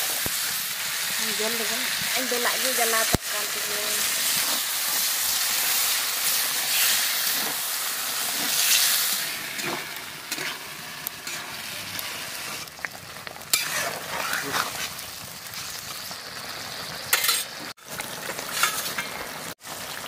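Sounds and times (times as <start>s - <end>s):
food sizzling in a pan: 0.0s - 20.0s
metal spatula scraping: 8.3s - 11.7s, 13.5s - 14.9s, 17.1s - 17.6s, 18.5s - 19.1s.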